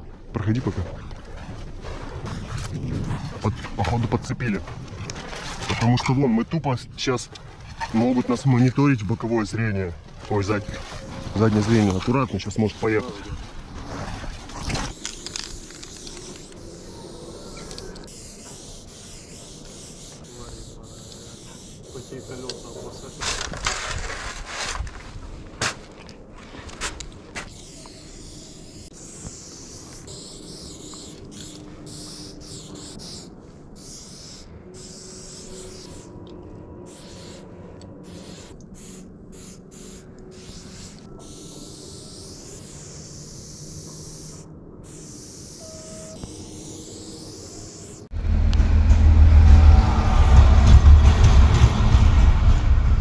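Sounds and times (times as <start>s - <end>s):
steady hiss: 14.9s - 23.5s, 27.4s - 36.1s, 38.1s - 48.1s
low background rumble: 48.1s - 53.0s.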